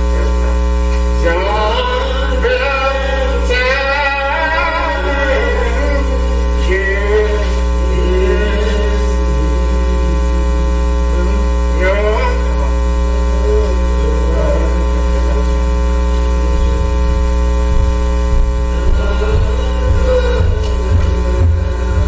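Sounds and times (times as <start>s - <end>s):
electrical mains hum and buzz: 0.0s - 22.0s
faint voices: 0.0s - 22.0s.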